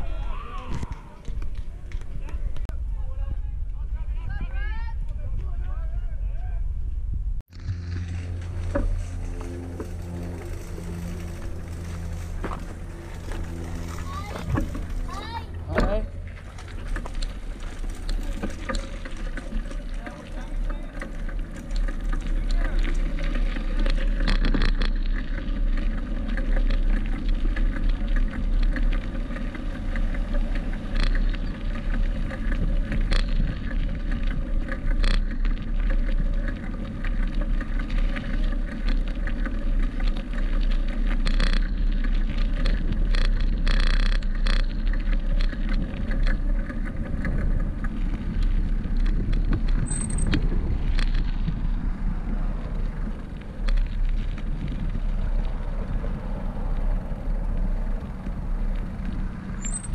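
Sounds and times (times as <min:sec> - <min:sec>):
wind rush on microphone: 0:00.0 - 0:07.8, 0:30.6 - 0:59.9
scattered clicks and knocks: 0:15.7 - 0:51.7.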